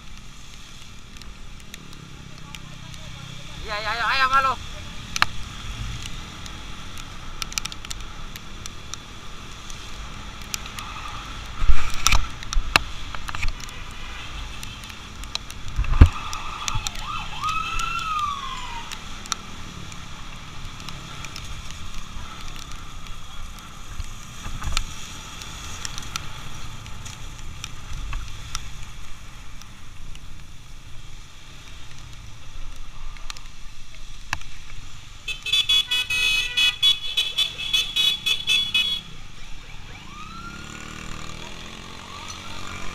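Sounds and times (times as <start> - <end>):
motorcycle wind noise: 4.8 - 35.2
sirens: 16.0 - 20.2, 38.8 - 42.9.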